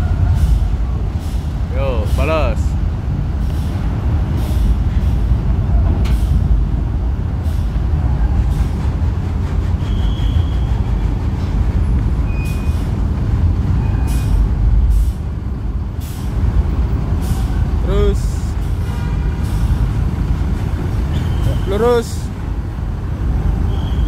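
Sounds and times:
diesel bus engine rumbling: 0.0 - 24.0
air brake hisses: 3.4 - 3.8, 13.9 - 15.2.

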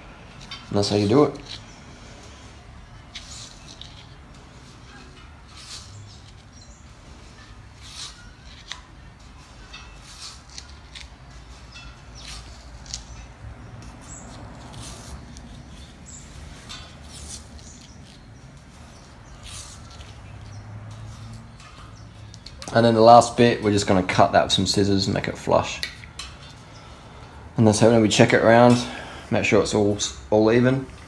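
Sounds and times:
rim tape scrapes and rubs: 0.4 - 22.5.

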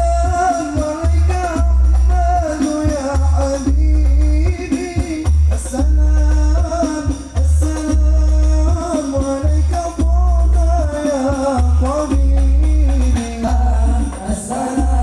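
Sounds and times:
sung melody over heavy bass beat: 0.0 - 15.0.

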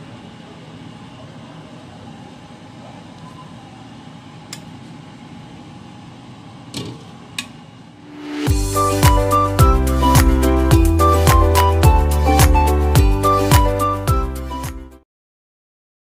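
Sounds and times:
steady background hum: 0.0 - 8.5.

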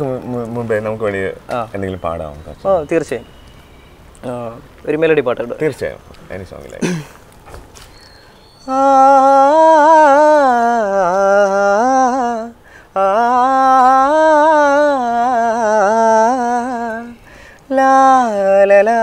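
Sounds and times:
man humming a melody: 8.6 - 19.0.

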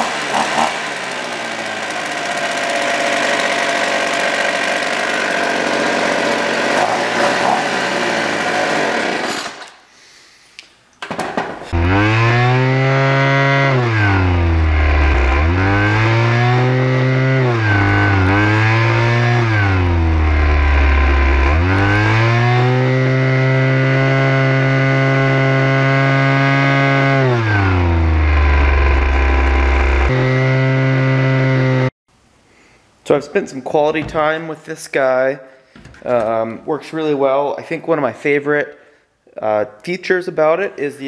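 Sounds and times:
leaf blower engine revving: 0.0 - 9.7, 11.7 - 31.9.

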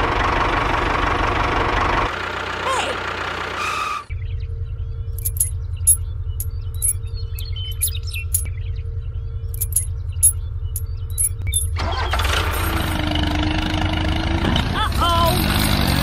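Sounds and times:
loud engine noise: 0.0 - 4.2, 5.1 - 6.0, 11.1 - 16.0
low engine rumble: 0.0 - 16.0
metal chain clinking: 5.2 - 8.5, 9.6 - 11.8.

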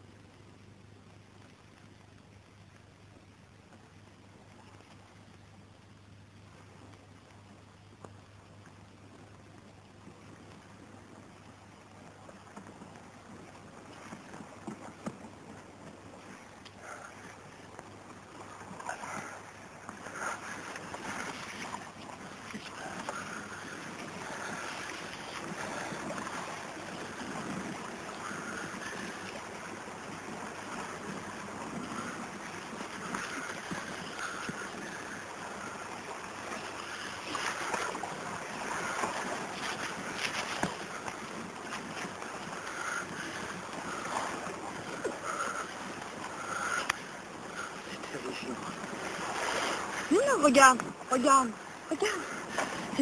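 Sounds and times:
sea surf: 8.3 - 53.0
wind buffeting microphone: 12.4 - 53.0.

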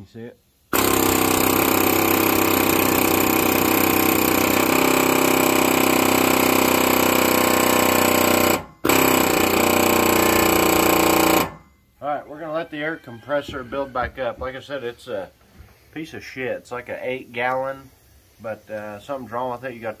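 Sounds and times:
pneumatic air hammer rattling: 0.7 - 11.7.

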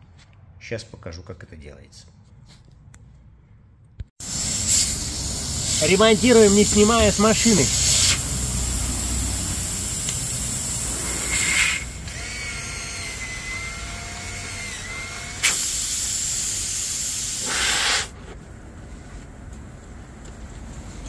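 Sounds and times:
air hissing from tyre: 4.2 - 12.1, 15.4 - 21.0
cordless drill whirring: 10.7 - 17.6.

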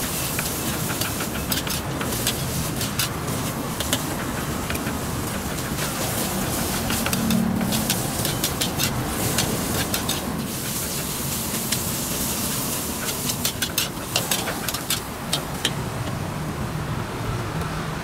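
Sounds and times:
steady frying hiss: 0.0 - 17.0
metal spatula clacking on wok: 0.4 - 12.0, 13.0 - 15.8.

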